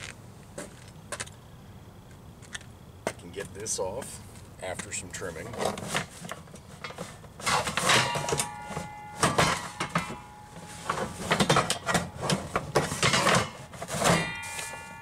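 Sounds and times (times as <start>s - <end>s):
tank cover scraping metal tubes: 4.8s - 15.0s
metal tubing ringing: 7.5s - 15.0s.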